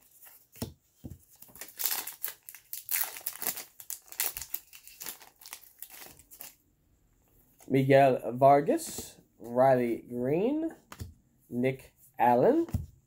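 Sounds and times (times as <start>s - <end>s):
plastic wrapper crinkling and tearing: 1.3s - 6.6s.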